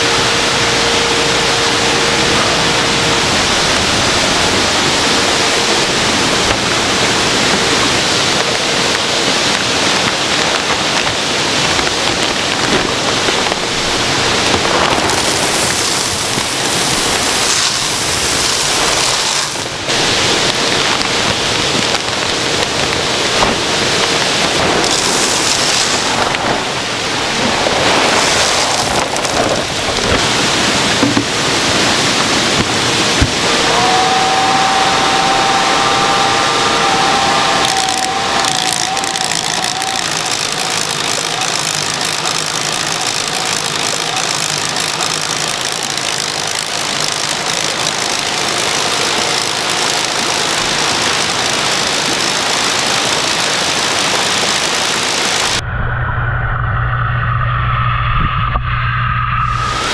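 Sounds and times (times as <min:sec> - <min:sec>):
water pouring into tanks: 0:36.6 - 0:55.6.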